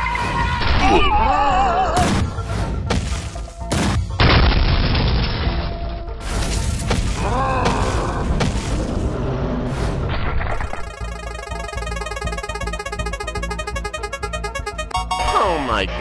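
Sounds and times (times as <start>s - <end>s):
background music: 10.9s - 16.0s.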